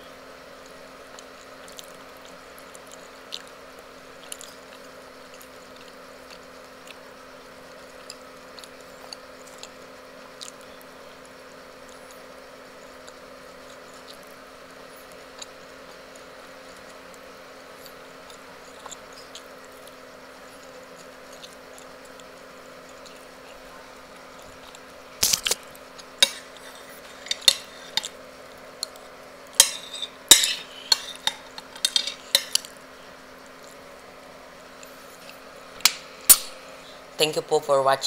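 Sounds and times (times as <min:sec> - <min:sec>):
steady low hum: 0:00.0 - 0:38.0
metal spoon scraping ceramic plate: 0:26.2 - 0:28.1, 0:29.6 - 0:32.7.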